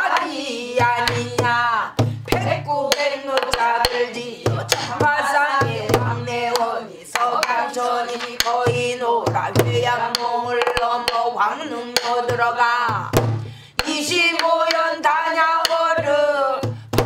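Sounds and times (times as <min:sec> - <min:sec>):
woman singing: 0:00.0 - 0:17.0
drum stick clicks: 0:06.4 - 0:08.8
deep drum thuds: 0:12.3 - 0:13.6.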